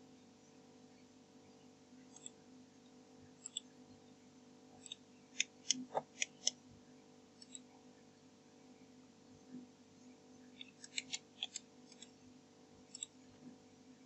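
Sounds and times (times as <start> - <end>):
faint steady hum: 0.0 - 14.0
computer mouse clicking: 2.1 - 2.4, 3.4 - 3.7, 4.8 - 6.6, 7.4 - 7.7, 10.5 - 12.2, 12.9 - 13.2.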